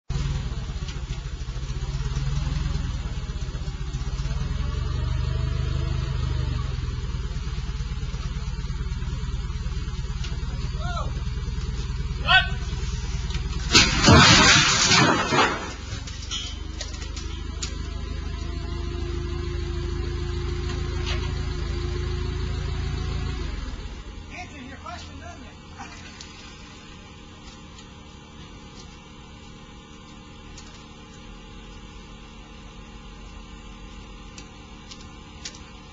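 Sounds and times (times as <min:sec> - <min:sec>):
forklift engine running: 0:00.0 - 0:35.9
steady whine: 0:23.6 - 0:35.9.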